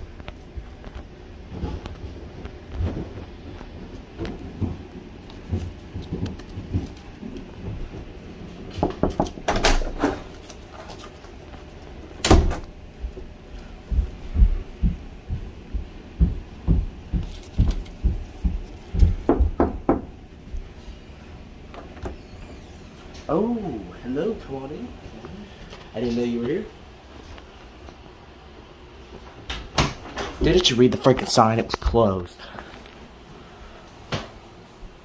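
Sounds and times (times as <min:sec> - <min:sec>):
knocks and clicks at a door: 0:18.0 - 0:20.1.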